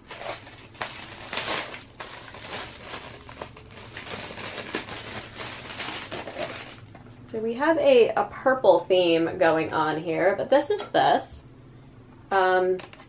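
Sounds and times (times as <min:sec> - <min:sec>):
packaging crinkling and rustling: 0:00.0 - 0:07.1.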